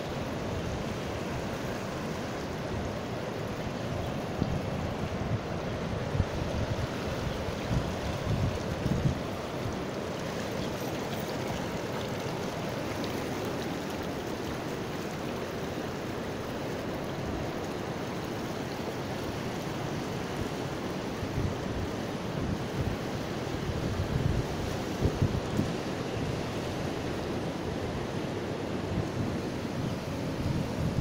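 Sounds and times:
river water rushing: 0:00.0 - 0:31.0
wind rumbling on microphone: 0:04.0 - 0:13.0, 0:21.2 - 0:31.0.

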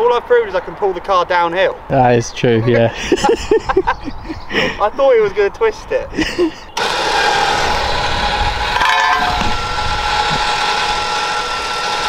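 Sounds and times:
winch whining: 0:06.8 - 0:12.0.

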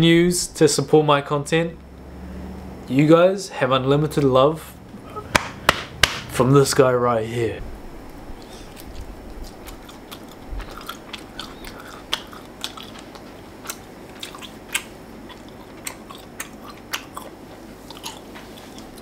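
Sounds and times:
person chewing food: 0:08.1 - 0:19.0.

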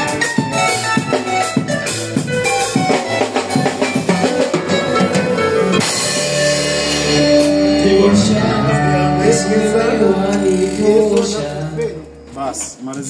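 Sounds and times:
drum kit strikes: 0:00.0 - 0:12.8
live band music: 0:00.0 - 0:13.0.

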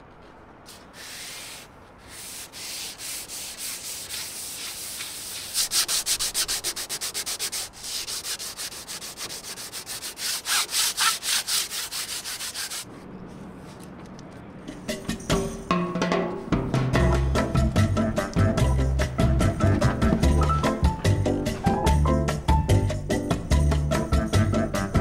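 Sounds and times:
sandpaper rubbing on wood: 0:00.7 - 0:12.9.

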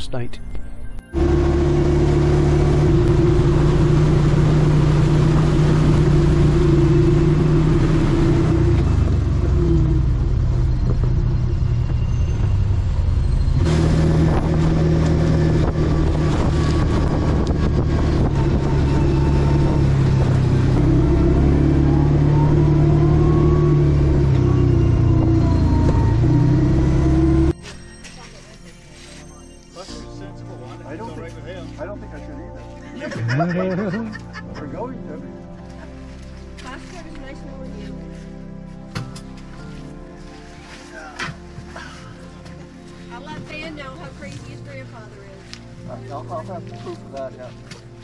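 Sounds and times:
utility vehicle engine running: 0:01.1 - 0:27.6.

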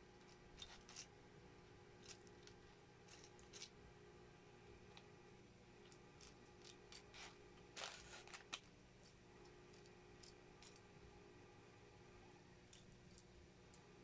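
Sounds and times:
plastic pieces clicking and rattling: 0:02.0 - 0:03.7.

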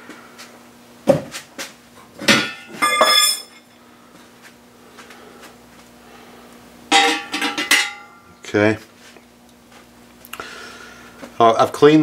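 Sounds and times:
metallic clang: 0:02.2 - 0:03.7, 0:06.9 - 0:08.2
metal engine parts clinking: 0:02.4 - 0:03.7, 0:06.9 - 0:08.2.

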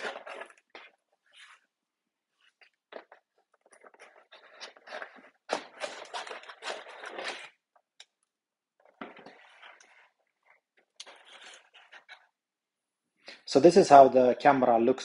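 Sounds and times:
cardboard rustling and scraping: 0:00.0 - 0:01.7, 0:02.4 - 0:07.6, 0:08.8 - 0:12.3.

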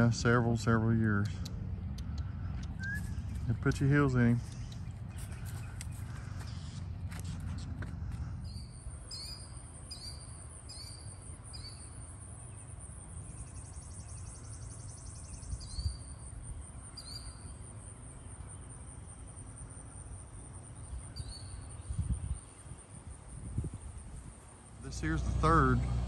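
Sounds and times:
bird chirping: 0:00.0 - 0:18.8, 0:20.8 - 0:22.8.

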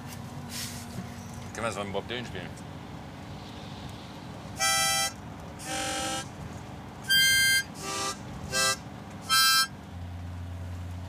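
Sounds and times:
low drone of moving van: 0:00.0 - 0:11.0
harmonica chords: 0:04.6 - 0:06.3, 0:07.0 - 0:09.7.

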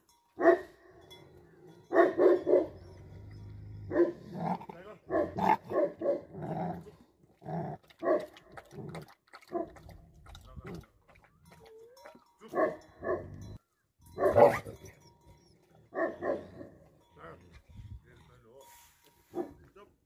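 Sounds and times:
dog barking: 0:00.4 - 0:00.8, 0:01.9 - 0:02.8, 0:03.9 - 0:04.3, 0:05.1 - 0:06.4, 0:08.0 - 0:08.4, 0:12.5 - 0:13.3, 0:14.2 - 0:14.8, 0:15.9 - 0:16.7, 0:19.3 - 0:19.6.

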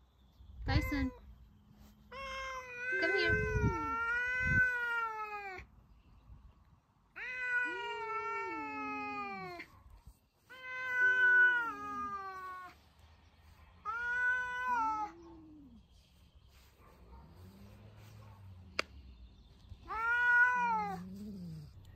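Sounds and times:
cats yowling: 0:02.1 - 0:05.7, 0:07.2 - 0:09.7, 0:10.4 - 0:12.8, 0:13.8 - 0:15.8, 0:19.8 - 0:21.8.

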